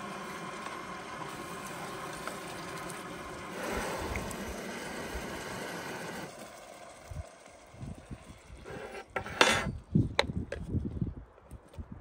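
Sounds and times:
camp stove burner hissing: 0.0s - 9.7s.

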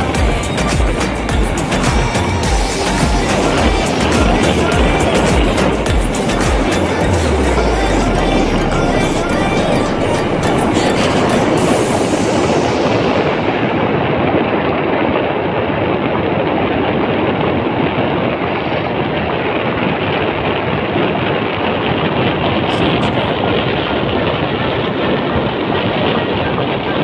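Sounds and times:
motorcycle engine and road noise: 0.0s - 27.0s
wind rushing over microphone: 0.0s - 27.0s.

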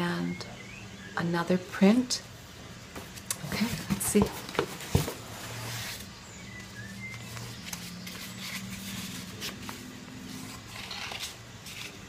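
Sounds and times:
paper rustling: 7.2s - 12.0s.

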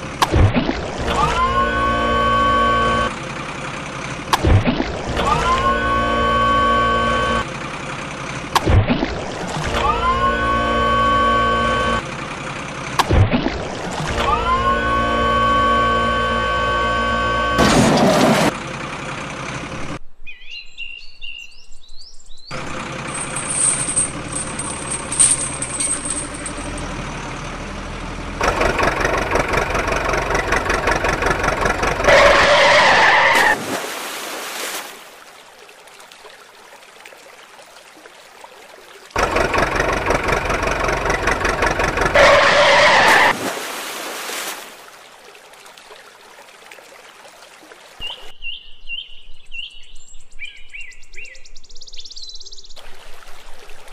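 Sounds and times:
bird chirps: 20.2s - 22.6s, 48.0s - 52.8s
vehicle engine revving: 22.5s - 33.4s, 39.2s - 43.4s.

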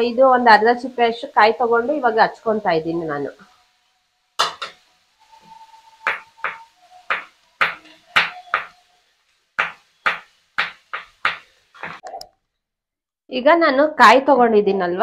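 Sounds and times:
knife chopping on wooden board: 6.1s - 8.8s, 9.6s - 12.0s.

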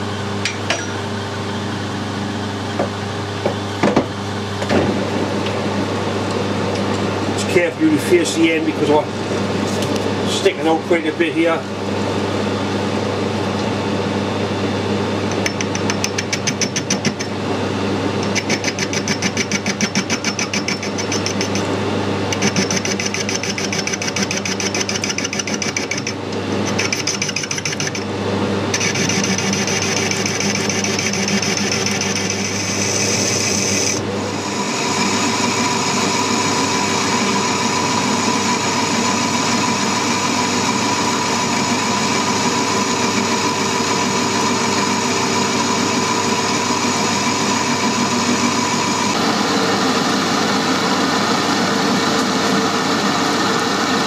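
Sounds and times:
lathe motor hum: 11.4s - 54.0s
cutting tool scraping steel tube: 18.2s - 21.7s, 22.3s - 28.0s, 28.7s - 34.0s.

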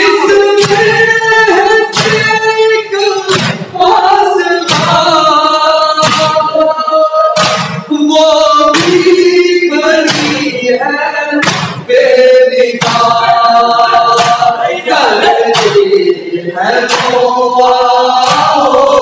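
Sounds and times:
men chanting a lament: 0.0s - 19.0s
chest slaps in unison: 1.9s - 2.4s, 3.3s - 3.7s, 4.6s - 5.1s, 6.0s - 6.5s, 7.3s - 7.9s, 8.7s - 9.2s, 10.1s - 10.5s, 11.4s - 11.9s, 12.8s - 13.4s, 14.0s - 14.6s, 15.4s - 16.0s, 16.9s - 17.3s, 18.2s - 18.8s.

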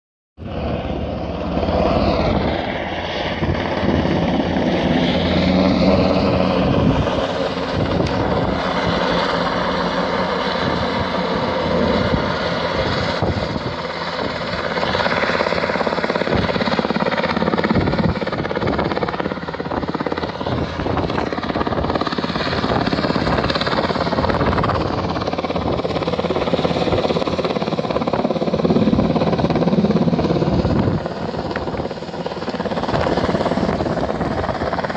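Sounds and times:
helicopter rotor and engine: 0.4s - 34.9s.

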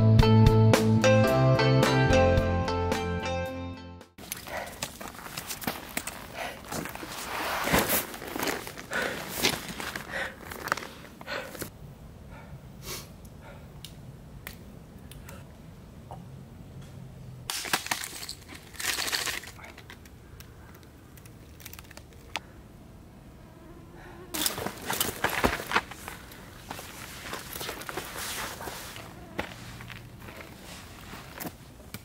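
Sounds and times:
footsteps on trail: 4.2s - 11.7s, 24.4s - 31.8s
rustling: 4.2s - 11.7s, 24.4s - 32.0s.

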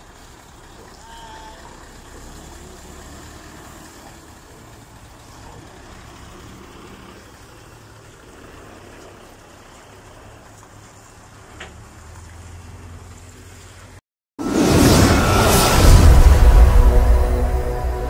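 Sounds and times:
truck diesel engine running: 0.0s - 10.6s.

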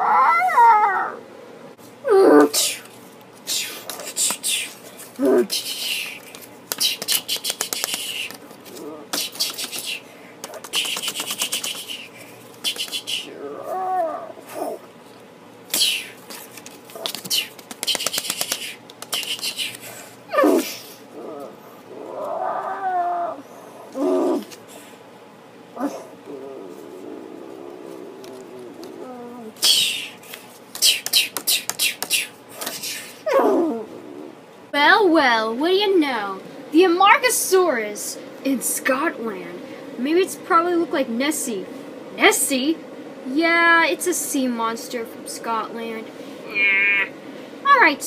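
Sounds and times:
child growling: 0.0s - 1.2s, 2.0s - 2.8s, 5.2s - 5.5s, 8.7s - 9.1s, 13.3s - 14.8s, 20.3s - 24.5s, 25.8s - 29.6s, 33.2s - 34.4s, 46.4s - 47.2s
child hissing: 2.1s - 2.9s, 15.7s - 16.2s, 29.3s - 30.2s, 30.8s - 33.8s
child making mouth sound effects: 2.1s - 2.9s, 46.5s - 47.2s.

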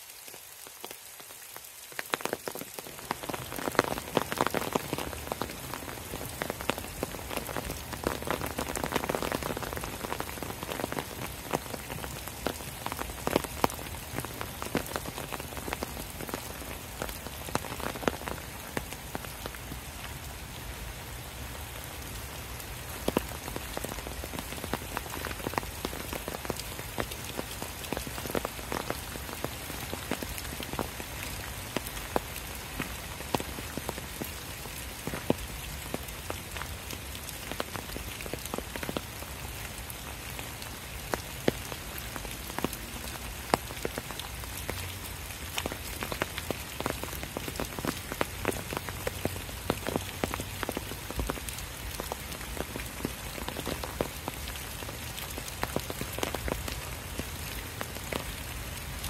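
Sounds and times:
rain hiss in woodland: 0.0s - 59.0s.

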